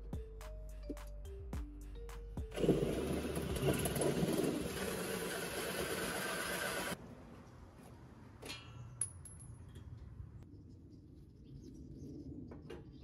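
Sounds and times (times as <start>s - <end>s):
metallic clink: 8.4s - 10.0s.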